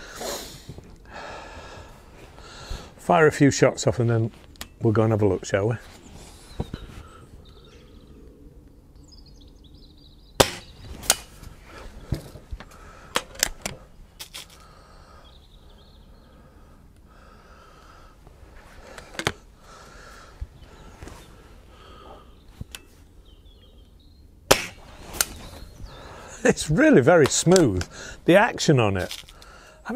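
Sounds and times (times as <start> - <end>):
metallic clicks of rifle barrel: 4.5 - 4.8, 13.1 - 14.6
air rifle shot: 10.4 - 11.4, 24.5 - 25.4.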